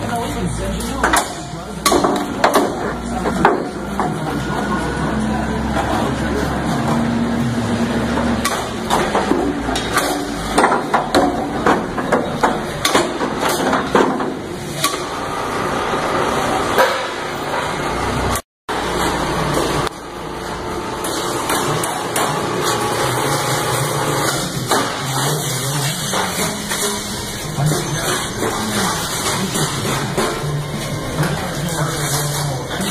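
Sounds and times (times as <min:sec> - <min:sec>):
steady background noise: 0:00.0 - 0:32.9.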